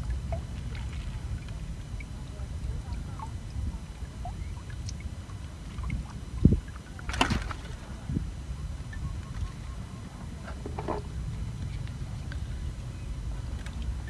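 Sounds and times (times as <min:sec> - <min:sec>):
wind rumbling on microphone: 0:00.0 - 0:14.0.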